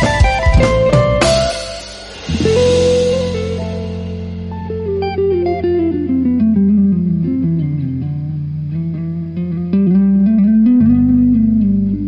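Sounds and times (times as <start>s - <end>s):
descending melody of short notes: 0.7s - 5.6s
low held tone: 0.9s - 12.0s.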